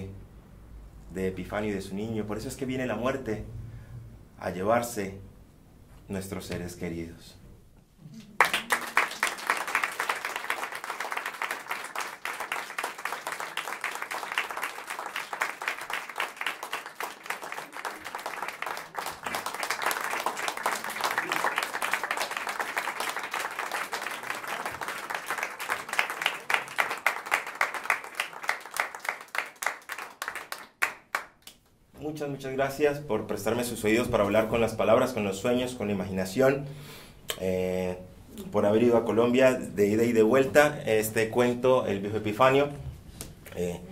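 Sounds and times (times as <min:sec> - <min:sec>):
audience applauding: 0:08.4 - 0:31.5.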